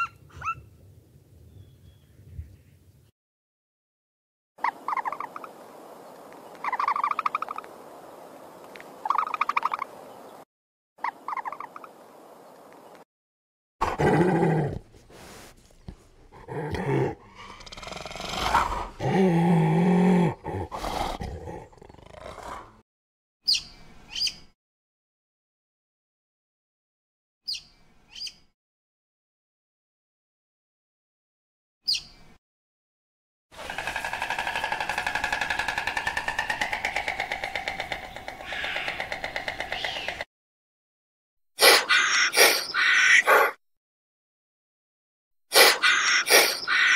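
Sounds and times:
animal high-pitched cries: 0:00.0 - 0:00.6, 0:41.6 - 0:43.6, 0:45.6 - 0:46.9
animal calling low: 0:16.2 - 0:22.7
pulsing animal call: 0:33.6 - 0:40.2.

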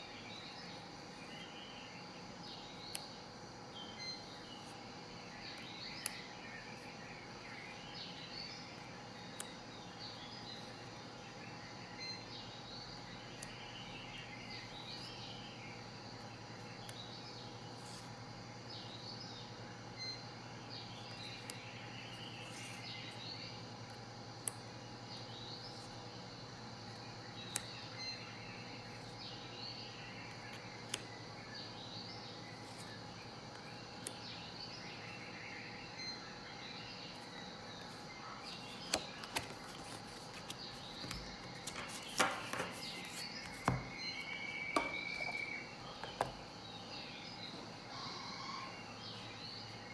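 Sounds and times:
birds chirping: 0:00.0 - 0:49.9
steady low hum: 0:00.0 - 0:49.9
playing cards clicking: 0:38.8 - 0:43.8.

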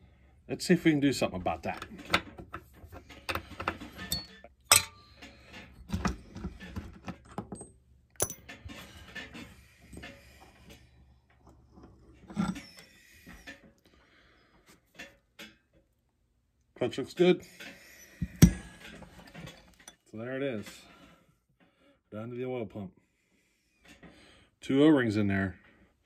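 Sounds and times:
metal tools clinking and clanking: 0:01.5 - 0:10.9, 0:11.7 - 0:13.7, 0:17.6 - 0:20.8.

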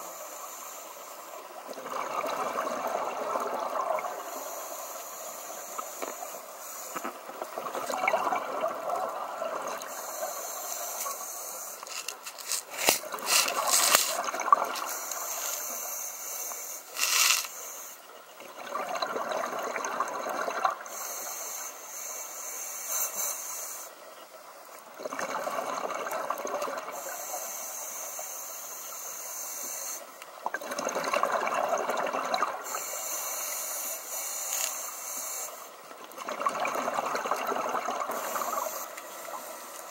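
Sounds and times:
scuba regulator inhale hiss: 0:00.0 - 0:01.4, 0:04.1 - 0:07.2, 0:09.8 - 0:14.2, 0:14.8 - 0:18.1, 0:20.9 - 0:24.0, 0:26.9 - 0:30.1, 0:32.6 - 0:35.8, 0:38.1 - 0:39.9
exhaled bubbles rushing: 0:01.7 - 0:04.3, 0:07.4 - 0:09.9, 0:13.1 - 0:14.9, 0:18.4 - 0:20.9, 0:25.0 - 0:27.0, 0:30.5 - 0:32.6, 0:36.1 - 0:38.5.

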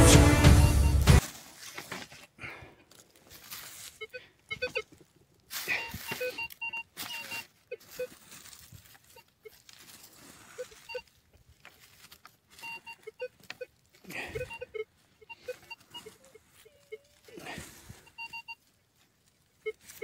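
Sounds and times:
background music: 0:00.0 - 0:01.2
metal detector beeps: 0:00.0 - 0:01.2, 0:03.8 - 0:04.9, 0:05.6 - 0:08.2, 0:09.0 - 0:09.6, 0:10.4 - 0:11.2, 0:12.5 - 0:18.7, 0:19.6 - 0:20.0
scraping of dry leaves and soil: 0:01.0 - 0:20.0.

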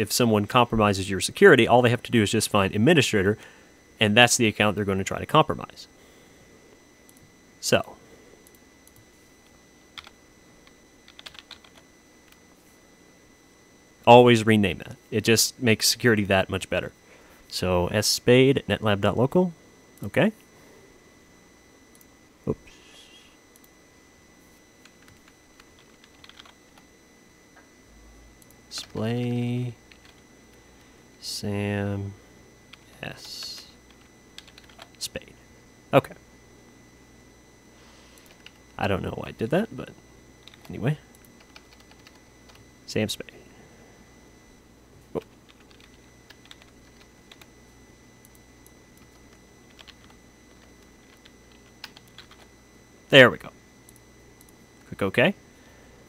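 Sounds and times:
keyboard typing: 0:09.9 - 0:10.2, 0:11.0 - 0:12.4, 0:24.8 - 0:26.8, 0:29.9 - 0:30.6, 0:32.7 - 0:35.0, 0:40.4 - 0:42.6, 0:45.2 - 0:47.5, 0:48.2 - 0:52.5.

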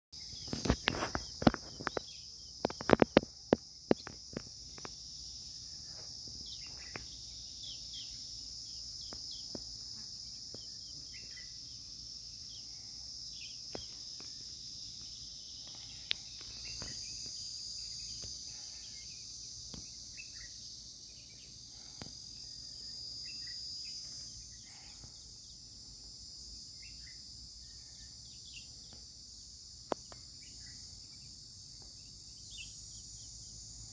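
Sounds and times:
insects chirring: 0:00.2 - 0:33.9
sharp clicks and knocks: 0:00.6 - 0:05.0.

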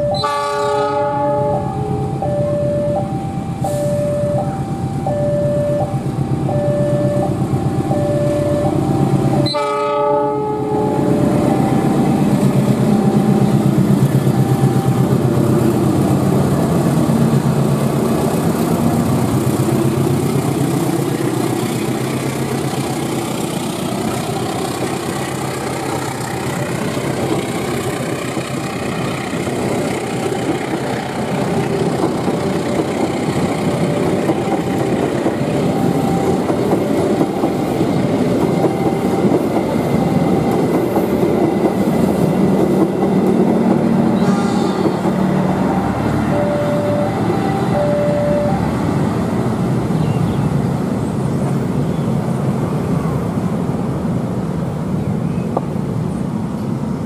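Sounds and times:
locomotive engine rumbling: 0:00.0 - 0:54.9
locomotive horn blast: 0:00.1 - 0:01.7, 0:09.4 - 0:12.2, 0:44.0 - 0:48.7
train wheels clattering: 0:18.5 - 0:46.2.

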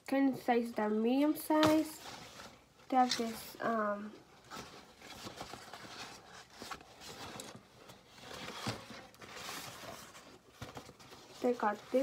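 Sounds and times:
rustling of plastic bag: 0:01.7 - 0:12.0.

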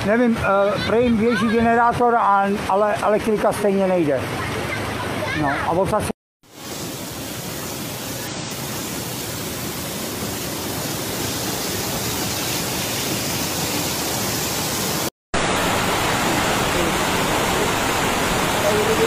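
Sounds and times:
floodwater rushing down street: 0:00.4 - 0:19.0
heavy rain pouring: 0:06.4 - 0:19.0.

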